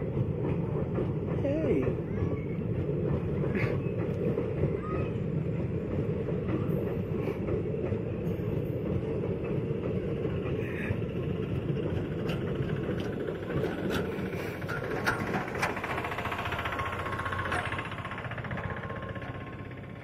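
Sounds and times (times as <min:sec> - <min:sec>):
train wheels rumbling on track: 0:00.0 - 0:20.0
sharp track clicks: 0:11.5 - 0:20.0.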